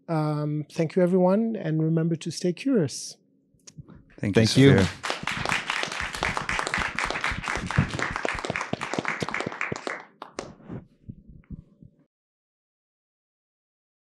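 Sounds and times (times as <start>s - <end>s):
audience applauding: 4.4s - 10.6s.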